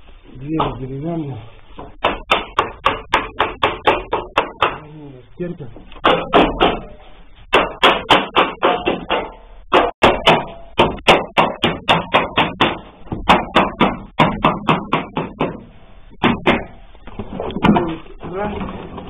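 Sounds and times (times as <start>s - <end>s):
rapid ringing knocks: 1.8s - 4.8s, 6.0s - 16.8s.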